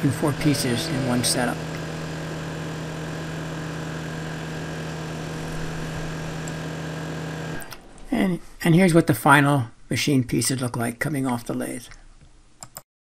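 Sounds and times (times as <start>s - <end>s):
lathe running: 0.0s - 8.2s.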